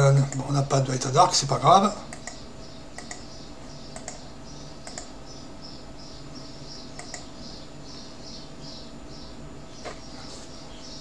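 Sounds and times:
computer mouse clicks: 2.1 - 3.3, 3.9 - 4.2, 4.8 - 5.1, 7.0 - 7.3.

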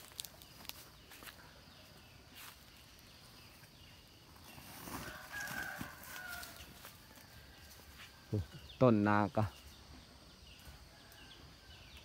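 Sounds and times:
rooster crowing faintly: 5.0 - 8.4.

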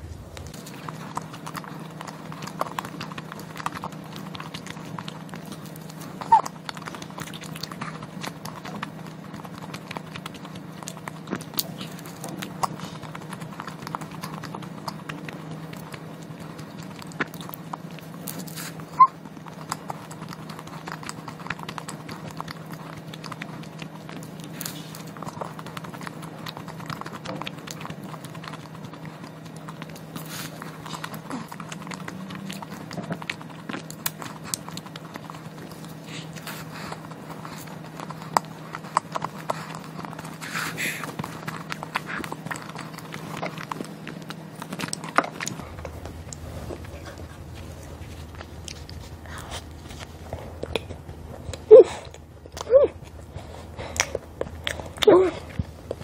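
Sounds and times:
chewing crunches and mouth clicks: 0.0 - 56.0
steady low hum: 0.0 - 56.0.

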